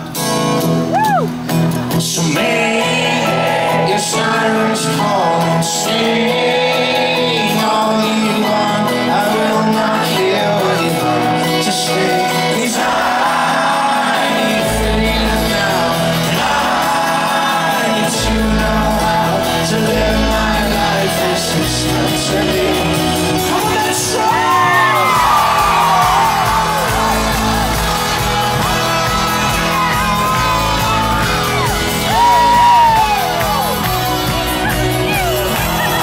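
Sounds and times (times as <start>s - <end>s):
crowd shouting and whooping: 0.8s - 1.8s, 23.3s - 36.0s
person singing: 1.9s - 36.0s
low bass notes: 18.2s - 36.0s.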